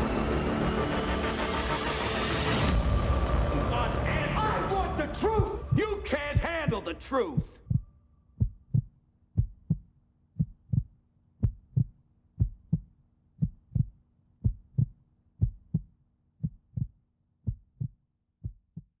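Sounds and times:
heartbeat thumps: 5.2 - 19.0.

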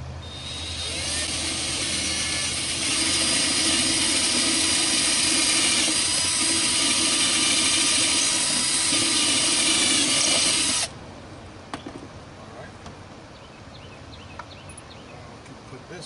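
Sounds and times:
cordless drill boring: 0.2 - 10.9.

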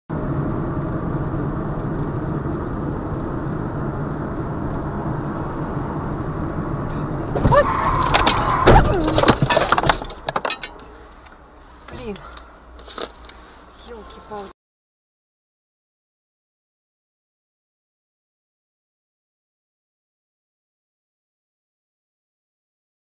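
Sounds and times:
car interior road and engine noise: 0.1 - 14.5
sharp knocks and clatter: 7.4 - 10.9.

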